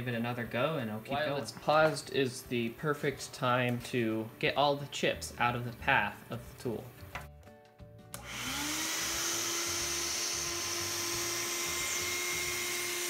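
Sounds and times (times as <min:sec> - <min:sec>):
shop vacuum running: 0:08.1 - 0:13.0.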